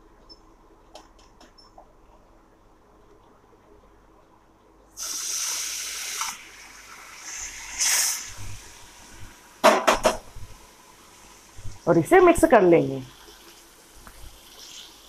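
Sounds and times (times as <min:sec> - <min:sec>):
hot oil sizzling: 0:05.0 - 0:15.0
sharp knocks: 0:09.6 - 0:10.3.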